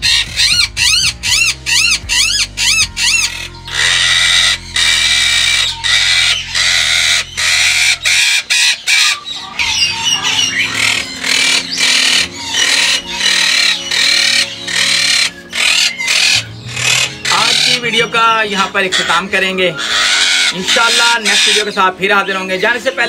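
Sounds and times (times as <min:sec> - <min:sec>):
parakeets screeching: 0:00.0 - 0:23.0.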